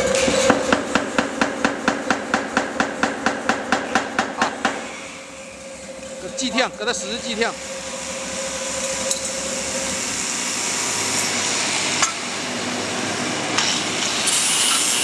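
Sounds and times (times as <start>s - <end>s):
high steady whine: 3.5s - 13.6s
machinery running: 3.6s - 15.0s.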